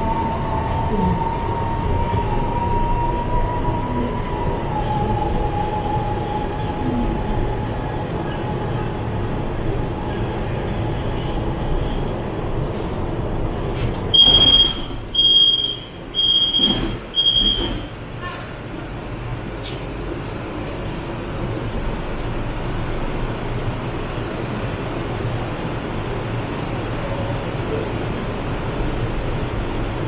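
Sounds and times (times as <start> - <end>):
train running noise with whine: 0.0 - 30.0
door warning beeps: 14.1 - 17.9.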